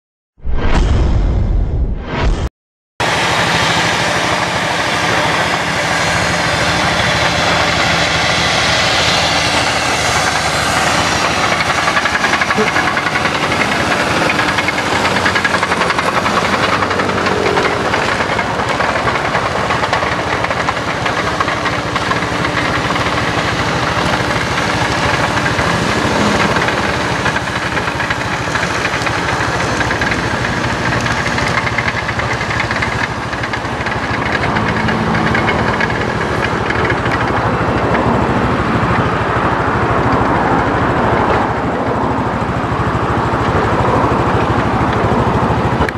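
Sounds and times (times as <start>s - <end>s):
tractor diesel engine running: 3.0s - 45.9s
mechanical clatter of machinery: 9.6s - 38.1s.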